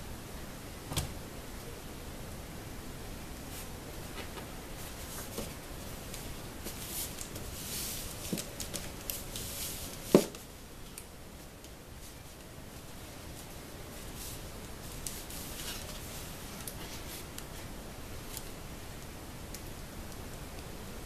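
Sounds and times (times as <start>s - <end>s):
foam sheet rustling and scuffing: 6.6s - 10.4s.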